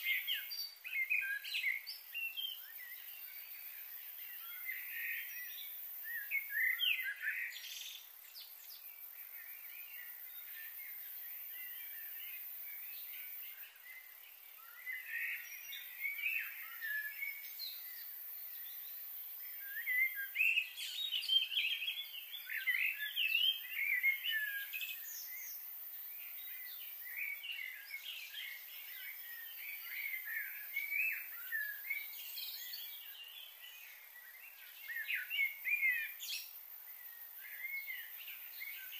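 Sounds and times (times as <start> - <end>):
faint high hiss: 0.0 - 38.9
small birds chirping: 0.0 - 38.9.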